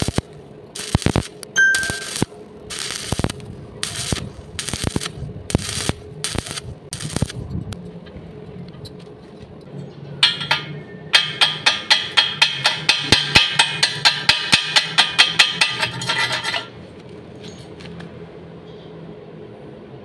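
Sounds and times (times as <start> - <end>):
hammer striking metal: 10.2 - 16.7.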